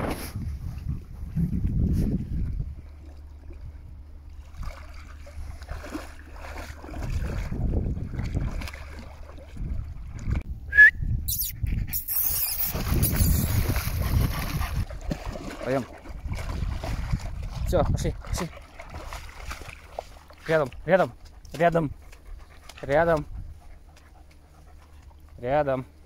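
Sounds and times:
wind rumbling on microphone: 0.0 - 4.6, 6.5 - 20.2, 21.7 - 23.9
water splashing at riverbank: 2.3 - 10.4, 12.1 - 23.2
sharp high squeak: 10.8 - 13.8.

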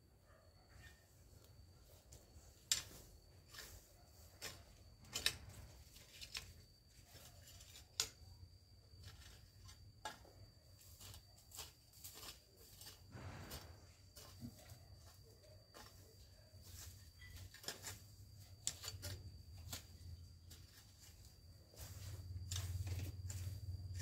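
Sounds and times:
hoe chopping and scraping soil: 2.8 - 6.0, 10.1 - 14.7, 16.6 - 24.0.

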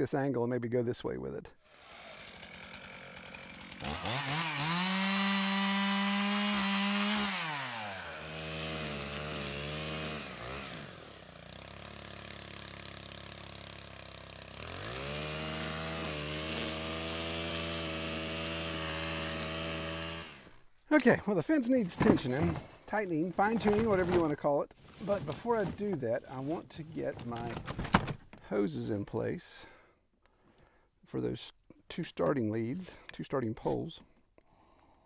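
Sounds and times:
chainsaw revving: 1.6 - 20.6
string trimmer engine running: 1.7 - 20.6.

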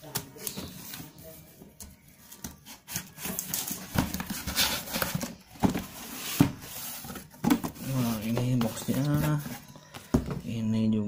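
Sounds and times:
cardboard scraping and rustling: 2.3 - 9.7.

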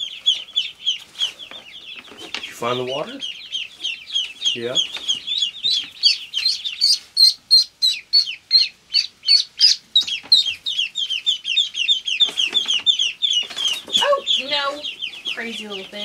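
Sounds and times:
ducklings peeping: 0.0 - 16.0.

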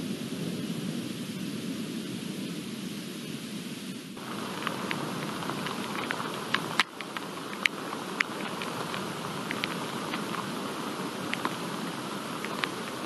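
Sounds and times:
hiss of falling rain: 0.0 - 13.0
raindrops ticking: 4.2 - 13.0.

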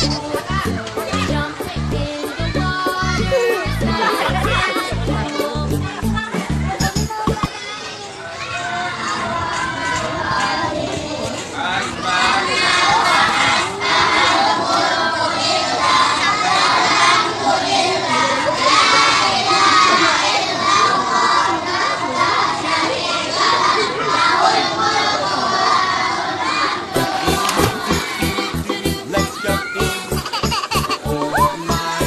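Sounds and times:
music with steady beat: 0.0 - 7.5, 27.0 - 32.0
children shouting and chattering: 0.0 - 32.0.

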